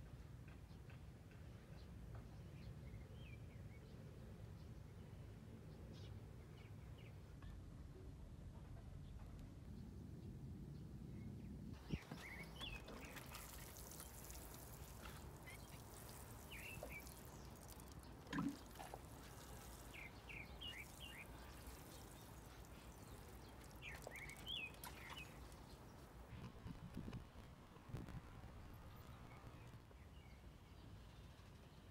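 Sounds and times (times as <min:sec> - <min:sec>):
small birds chirping: 0:10.8 - 0:27.2.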